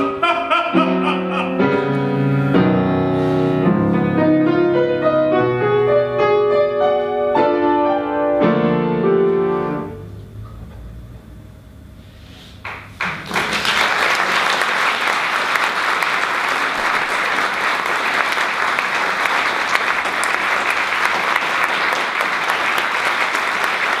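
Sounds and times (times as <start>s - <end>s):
audience applause: 12.6s - 24.0s.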